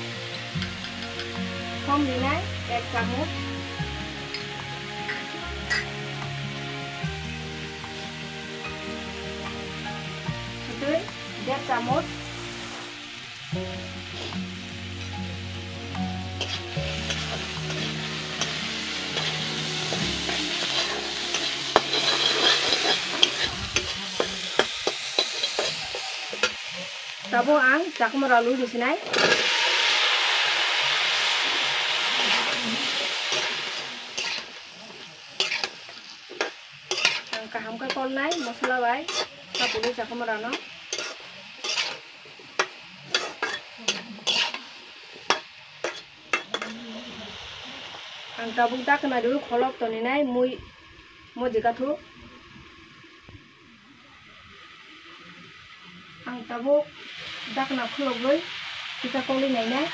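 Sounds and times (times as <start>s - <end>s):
food sizzling in oil: 0.0s - 59.9s
metal spatula scraping wok: 4.2s - 6.7s, 13.8s - 27.1s, 29.0s - 30.4s, 31.2s - 47.1s.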